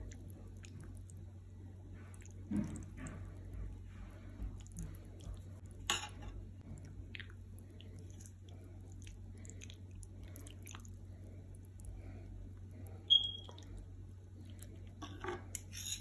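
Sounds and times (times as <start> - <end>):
spaghetti squelching: 6.6 - 15.7.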